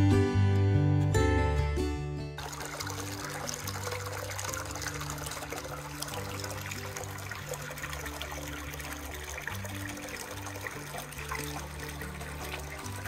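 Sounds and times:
water pouring into bath: 2.4 - 13.0.

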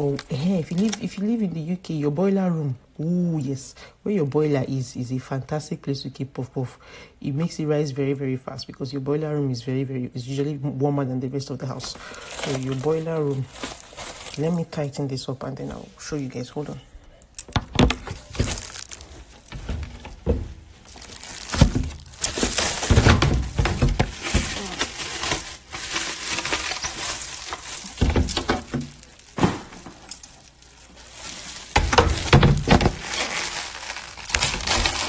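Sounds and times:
cling film crinkling: 0.0 - 1.3, 11.8 - 15.0, 17.3 - 35.0.

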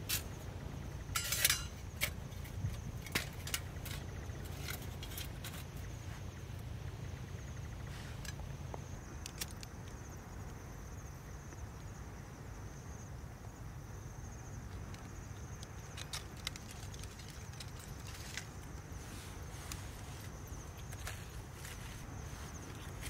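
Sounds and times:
cricket trilling: 0.0 - 23.0
twigs and leaves rustling: 14.7 - 23.0.

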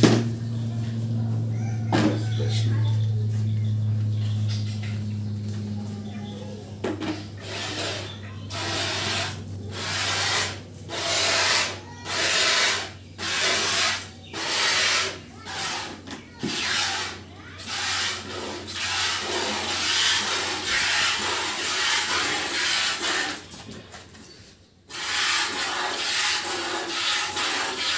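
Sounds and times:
milk squirting into bucket: 24.9 - 27.9.

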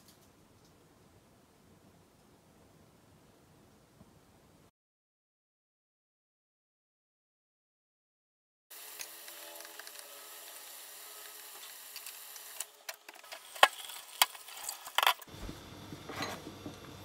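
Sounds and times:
water boiling hiss: 8.7 - 17.0.

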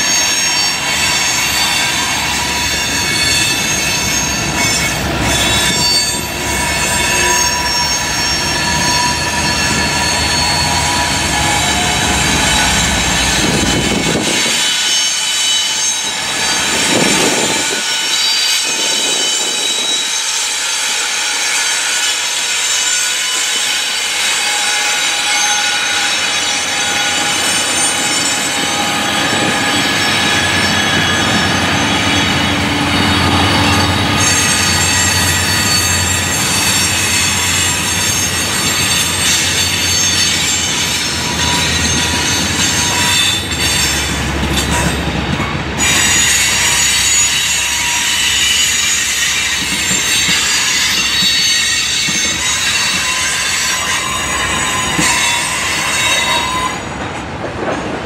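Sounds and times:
train wheels squealing: 0.0 - 57.4
rumble and clatter of train cars: 0.0 - 58.0.

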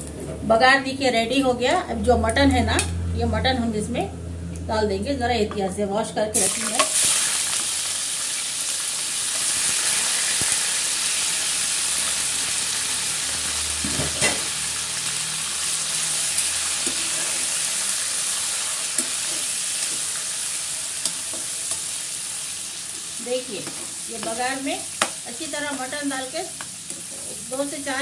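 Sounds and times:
meat sizzling in hot oil: 6.4 - 28.0.

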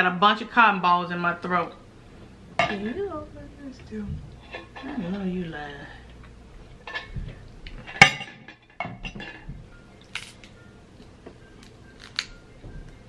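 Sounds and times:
crab shells cracking: 11.6 - 12.3.

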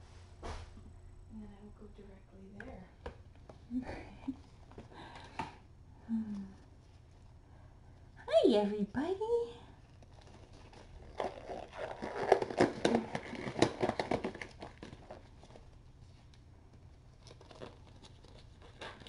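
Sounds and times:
crinkling and rustling: 9.7 - 19.0.

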